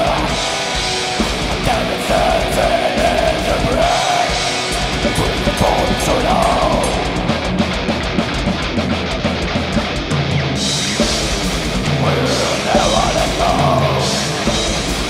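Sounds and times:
death metal band playing: 0.0 - 15.0
drum fill: 0.0 - 15.0.

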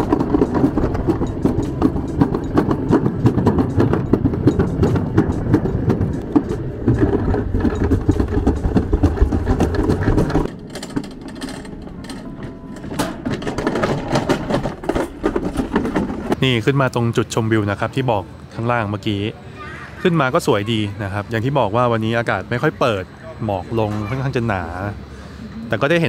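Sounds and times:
sled rattling down metal track: 0.0 - 18.1.

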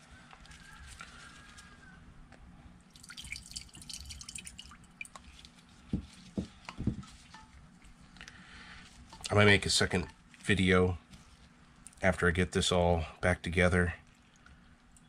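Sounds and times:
liquid dripping into a ceramic bowl: 2.9 - 5.5.

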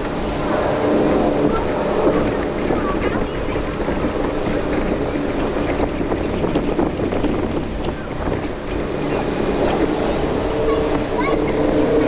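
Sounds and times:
boat engine drone: 0.0 - 12.0
rushing wake and spray: 0.0 - 12.0
wind buffeting microphone: 0.0 - 12.0.

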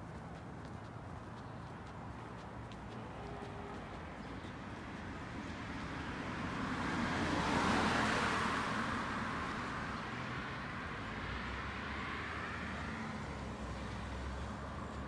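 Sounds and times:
car driving past: 6.5 - 9.9.

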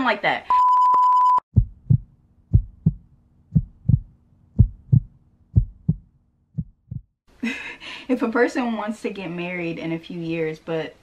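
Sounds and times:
test-card beep: 0.5 - 1.4
heartbeat thumps: 1.5 - 7.2.

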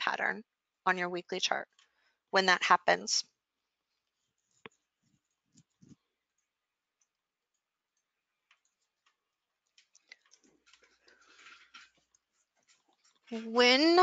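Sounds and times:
computer mouse and keyboard clicks: 4.2 - 13.2.

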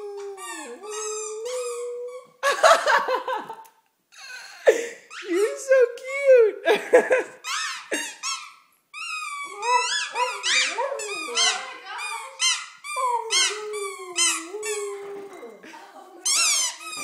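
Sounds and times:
dog howling: 0.0 - 2.1, 9.4 - 11.7, 13.0 - 15.7
squeaky toys squeaking: 0.4 - 2.4, 5.1 - 5.5, 7.4 - 15.1, 16.2 - 17.0.

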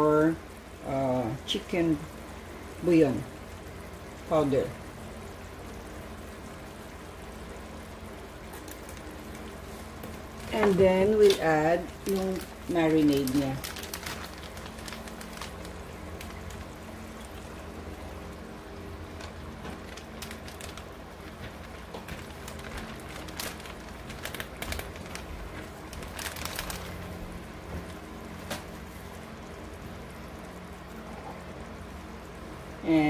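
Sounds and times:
chicken sizzling in a frying pan: 0.0 - 33.0
plastic bag rustling: 8.5 - 17.6, 19.0 - 28.8.

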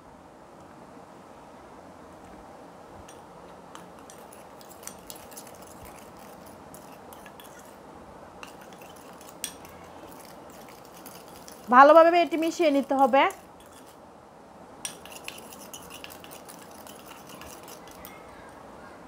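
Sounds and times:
spoon scraping paste: 3.1 - 7.8, 8.4 - 14.0, 14.9 - 18.3
spoon clinking on glass: 4.0 - 7.8, 8.4 - 11.7, 14.8 - 18.2.

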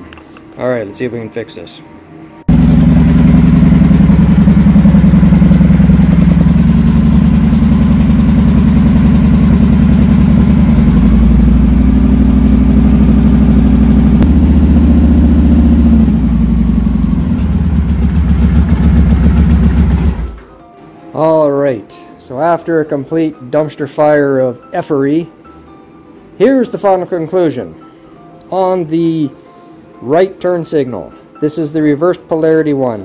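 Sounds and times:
motorcycle engine running: 2.5 - 20.5.

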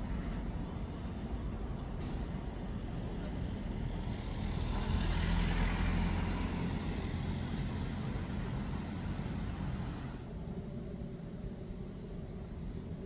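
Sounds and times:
car driving past: 4.1 - 10.2.

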